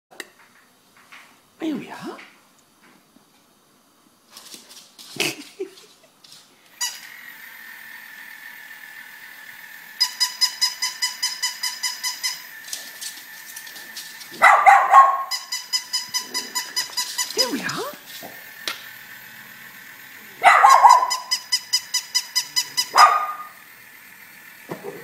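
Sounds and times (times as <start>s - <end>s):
toy dog bark: 10.0s - 12.5s, 14.4s - 18.0s, 20.4s - 23.7s
toy clicks and knocks: 15.3s - 19.0s, 20.9s - 23.0s.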